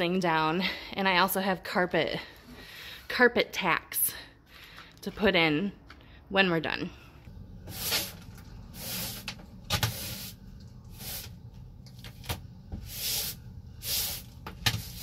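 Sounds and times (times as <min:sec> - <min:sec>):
broom sweeping wooden floor: 0:07.6 - 0:11.4, 0:12.7 - 0:15.0.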